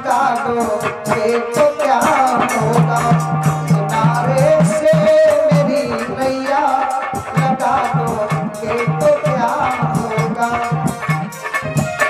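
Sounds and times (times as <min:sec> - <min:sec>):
man singing: 0:00.0 - 0:11.8
hand drum: 0:00.0 - 0:12.0
long held instrumental notes: 0:00.0 - 0:12.0.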